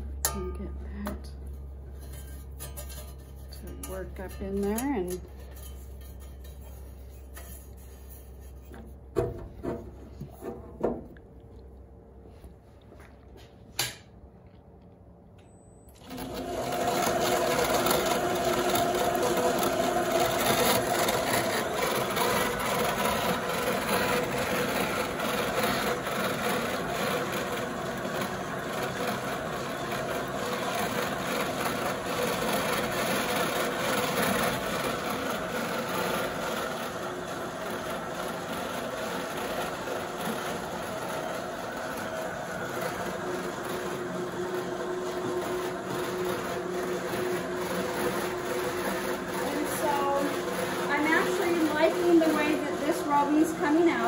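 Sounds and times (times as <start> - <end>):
wool roving machine running: 3.0 - 7.5, 15.9 - 54.0.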